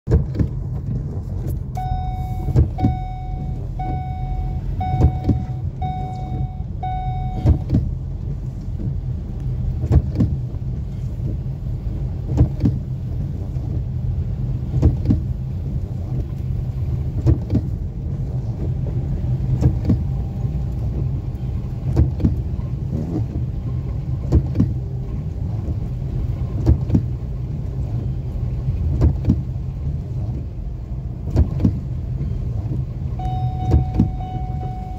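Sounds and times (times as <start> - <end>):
car engine and road rumble: 0.0 - 34.9
windscreen wipers knocking: 0.1 - 34.9
electronic beep: 1.8 - 7.6, 33.2 - 34.9.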